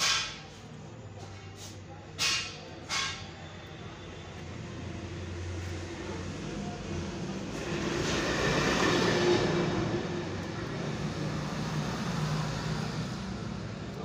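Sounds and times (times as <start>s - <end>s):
passing vehicle engine rumble: 4.3s - 14.0s.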